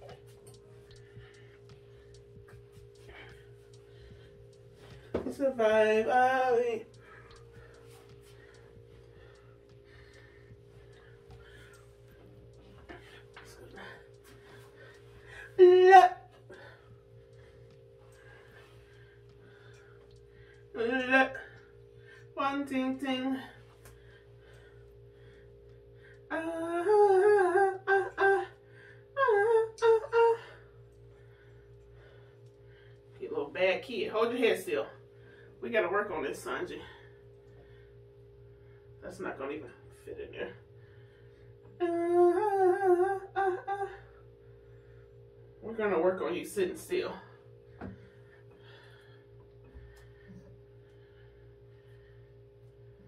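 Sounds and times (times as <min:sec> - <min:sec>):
faint steady hum: 0:00.0 - 0:53.0
woman humming: 0:05.1 - 0:07.4, 0:15.3 - 0:16.8, 0:20.7 - 0:21.6, 0:26.3 - 0:28.6, 0:29.2 - 0:30.8, 0:41.8 - 0:44.2.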